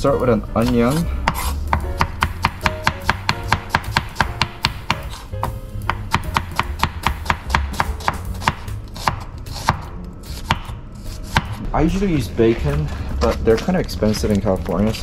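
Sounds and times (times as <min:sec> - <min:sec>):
knife chopping on cutting board: 0:00.6 - 0:11.6.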